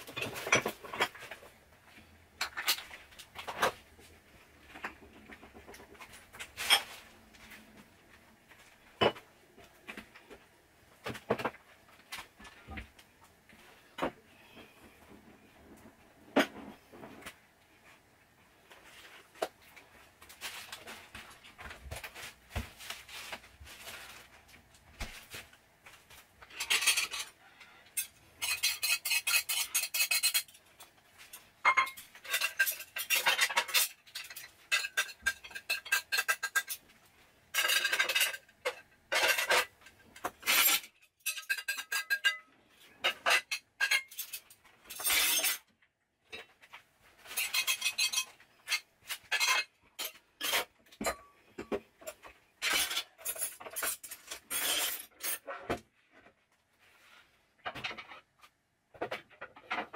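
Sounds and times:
plates and cutlery clinking: 26.5s - 27.3s, 28.0s - 30.6s, 31.3s - 36.8s, 37.5s - 45.6s, 47.3s - 55.5s.

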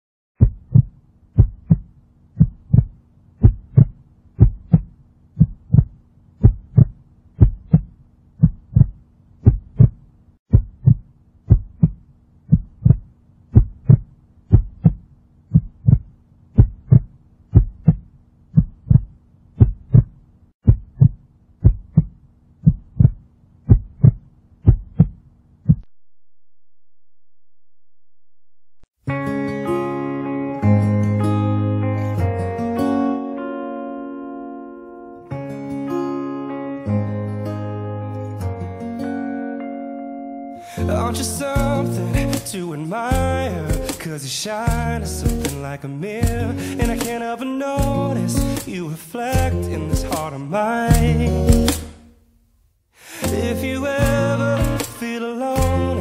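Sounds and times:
heartbeat thumps: 0.4s - 25.9s, 43.1s - 43.8s, 44.7s - 45.4s.

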